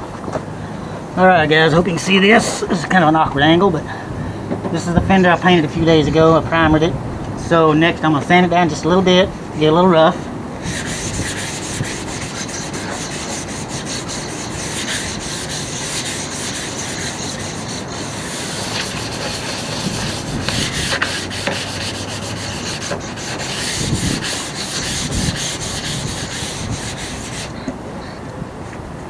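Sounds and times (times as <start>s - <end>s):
sanding disc scraping metal: 10.6s - 27.6s.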